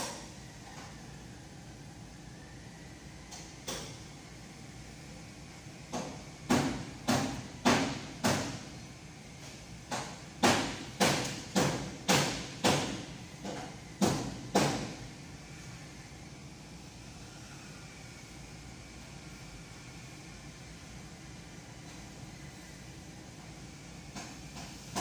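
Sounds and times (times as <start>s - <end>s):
sharp knocks on hard surface: 9.9s - 13.0s.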